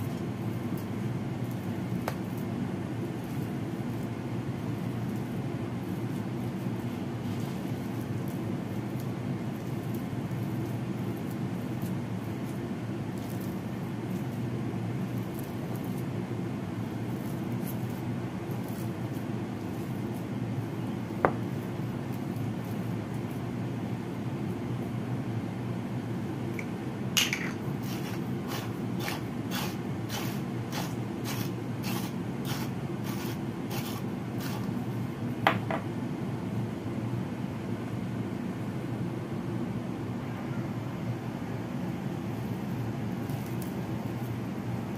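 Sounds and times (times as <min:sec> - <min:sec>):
spatula mashing food in a bowl: 0:00.0 - 0:23.4, 0:27.7 - 0:34.8
low background hum: 0:00.0 - 0:44.9.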